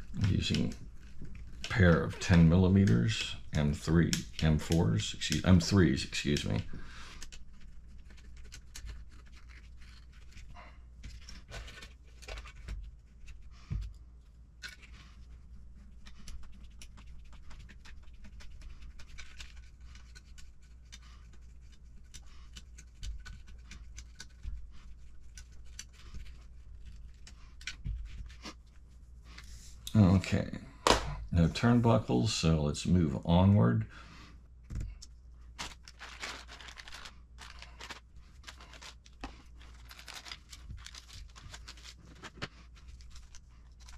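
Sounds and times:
parts and tools handled: 34.6s - 43.9s.

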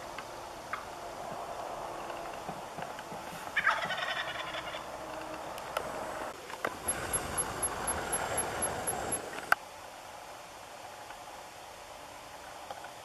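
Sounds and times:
turkey gobbling: 3.6s - 5.0s.

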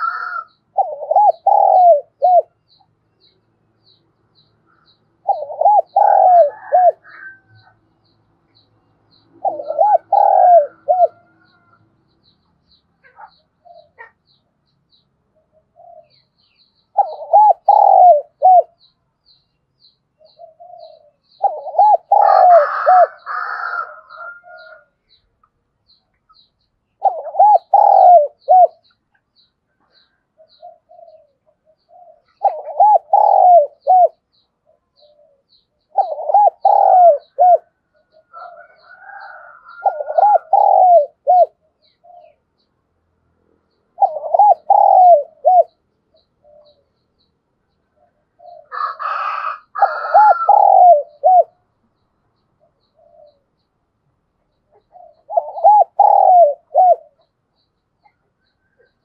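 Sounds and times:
dove cooing: 0.0s - 2.8s, 4.7s - 7.8s, 9.2s - 11.8s, 13.0s - 14.2s, 15.4s - 18.9s, 20.2s - 24.9s, 27.0s - 28.9s, 29.8s - 42.4s, 43.9s - 47.0s, 47.9s - 51.6s, 52.6s - 53.5s, 54.5s - 57.3s.

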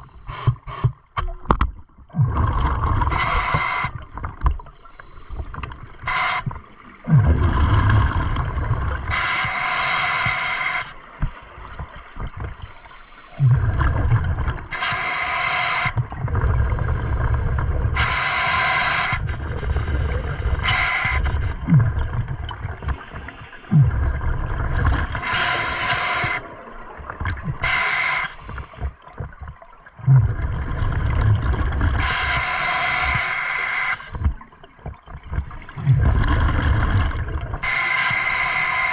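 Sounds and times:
exhaled bubbles rushing: 2.0s - 10.4s, 13.4s - 14.8s, 15.8s - 32.4s, 34.1s - 38.9s
regulator inhalation hiss: 3.1s - 4.0s, 4.8s - 6.5s, 9.0s - 13.4s, 14.7s - 16.0s, 16.7s - 21.6s, 22.6s - 23.9s, 25.1s - 26.6s, 27.6s - 28.8s, 32.0s - 34.2s, 37.6s - 38.9s.

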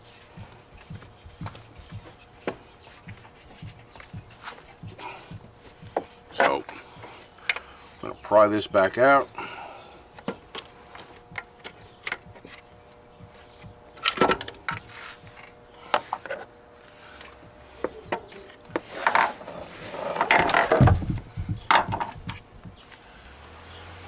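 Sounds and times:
metal knocking and scraping: 17.8s - 22.4s
heavy thud and clatter: 20.3s - 22.4s.

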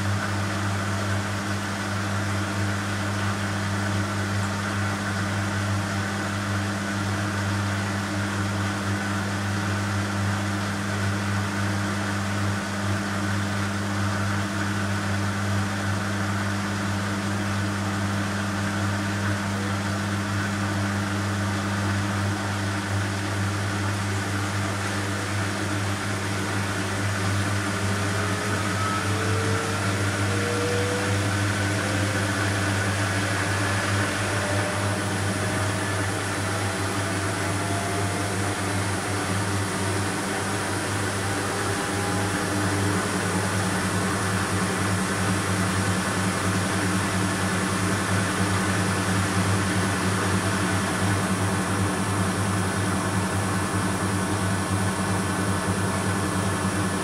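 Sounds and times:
washing machine spinning up: 0.0s - 57.0s
motor whine rising in pitch: 24.5s - 57.0s.

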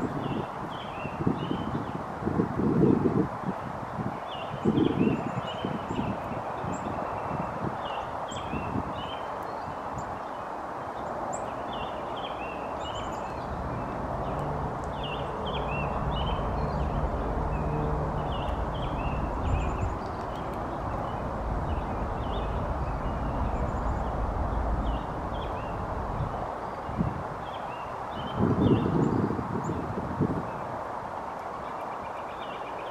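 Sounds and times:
small birds chirping: 0.0s - 2.1s, 3.4s - 32.9s
low rumble: 13.5s - 26.5s.

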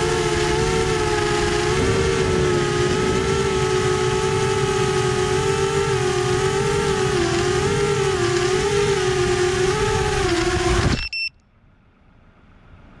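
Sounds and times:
drone propellers humming: 0.0s - 11.0s
brief beep: 10.9s - 11.4s.

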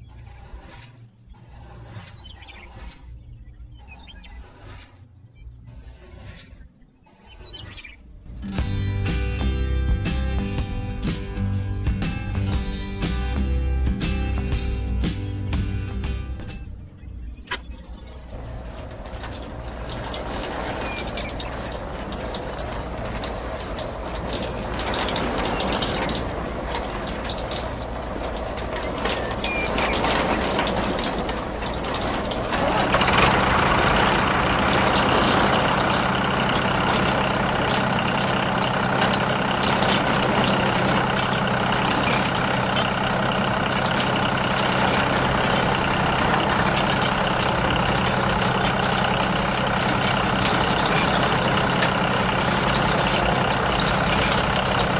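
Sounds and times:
brush arms sweeping sand: 0.0s - 3.2s, 3.8s - 8.0s, 18.6s - 54.9s
small motor running: 32.5s - 54.9s.

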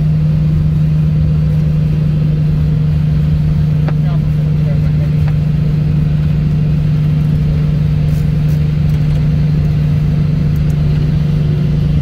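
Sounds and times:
light aircraft engine droning: 0.0s - 12.0s.

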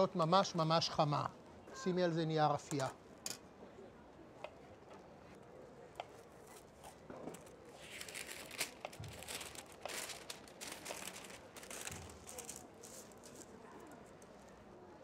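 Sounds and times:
parchment paper crinkling: 6.4s - 14.5s.

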